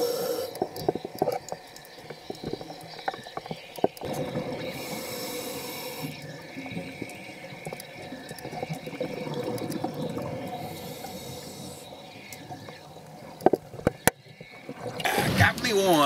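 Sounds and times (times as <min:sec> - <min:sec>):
crackling clicks: 0:00.0 - 0:15.7
high hiss: 0:04.7 - 0:06.3.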